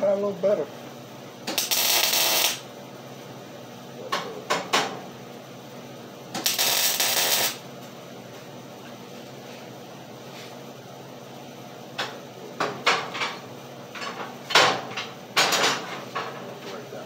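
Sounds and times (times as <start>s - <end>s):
arc welding crackling hiss: 1.4s - 2.8s, 6.3s - 7.7s.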